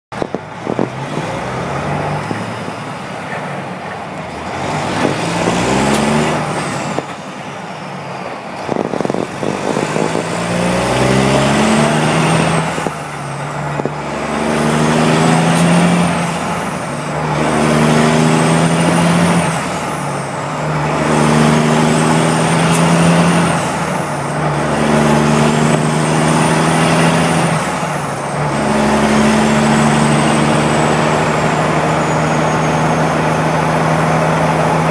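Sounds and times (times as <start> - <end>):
diesel truck engine accelerating: 0.1 - 34.9.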